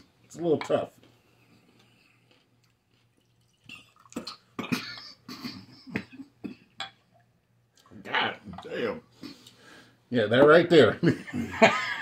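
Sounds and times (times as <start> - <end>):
man coughing: 4.6 - 6.7.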